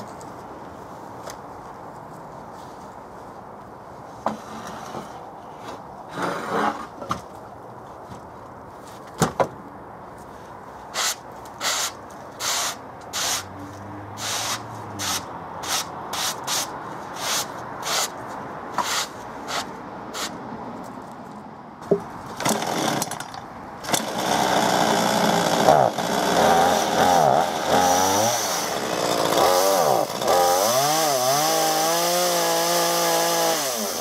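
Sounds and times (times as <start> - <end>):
gloved hands brushing sawdust: 14.2 - 20.4.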